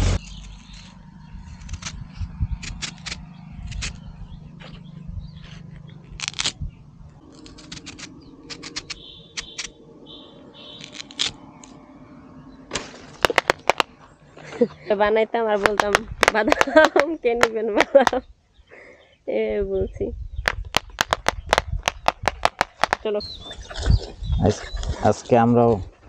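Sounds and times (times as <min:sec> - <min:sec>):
sickle blade cutting stalk: 0:00.0 - 0:04.8, 0:05.4 - 0:06.6, 0:07.2 - 0:09.8, 0:10.8 - 0:11.8, 0:20.5 - 0:23.1.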